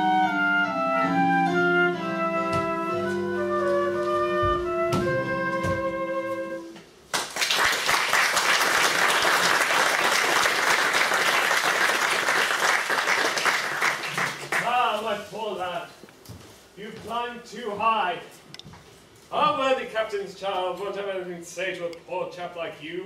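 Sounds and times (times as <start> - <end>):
operetta orchestra held notes: 0.0 - 6.8
audience applause: 7.2 - 14.7.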